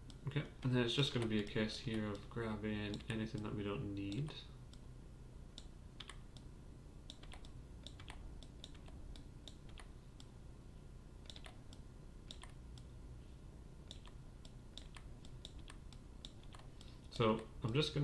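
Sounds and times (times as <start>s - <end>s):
faint low hum: 0.0s - 18.0s
mouse and keyboard clicking: 5.6s - 6.5s, 7.1s - 10.3s, 11.2s - 12.9s, 13.9s - 17.8s.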